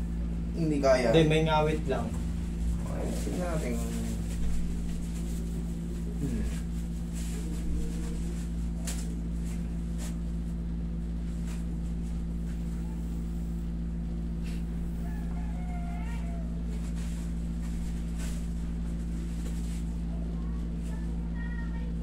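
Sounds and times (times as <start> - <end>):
air conditioner humming: 0.0 - 22.0
soft rustles of hands on tissue: 2.6 - 12.7.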